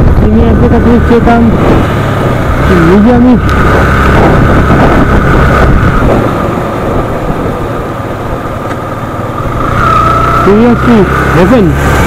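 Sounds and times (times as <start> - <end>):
motorcycle engine: 0.0 - 12.0
road noise: 0.0 - 12.0.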